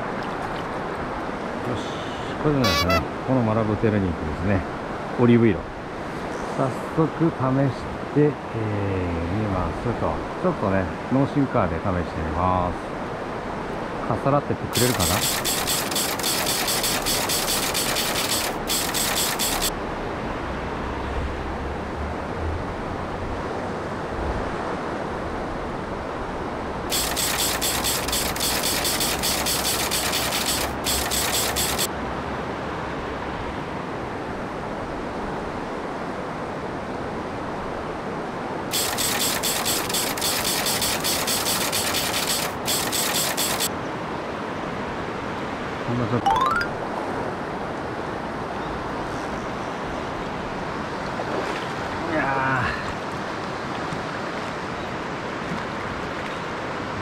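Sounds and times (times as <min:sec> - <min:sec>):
fishing reel ratchet clicking: 0:14.8 - 0:19.7, 0:26.9 - 0:31.9, 0:38.7 - 0:43.7.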